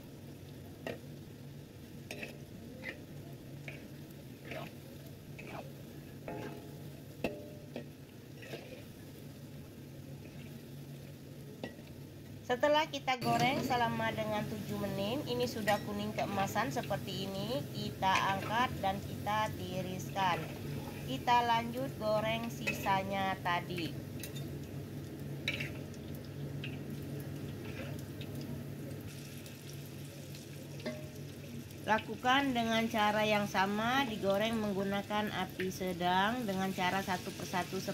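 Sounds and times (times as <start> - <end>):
food deep-frying in hot oil: 0.0 - 37.9
oil dripping into wok: 23.8 - 31.9.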